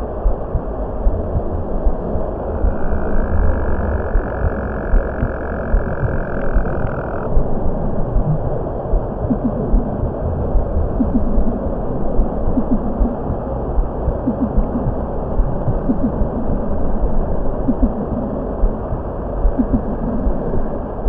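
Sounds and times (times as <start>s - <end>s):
low rumbling hiss: 0.0s - 21.0s
low throbbing pulses: 0.0s - 21.0s.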